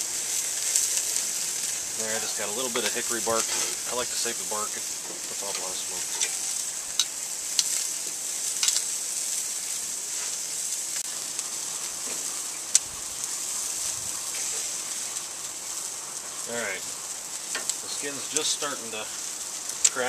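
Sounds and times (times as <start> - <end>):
sausages sizzling on grill: 0.0 - 20.0
metal tongs clicking on grate: 8.6 - 8.8.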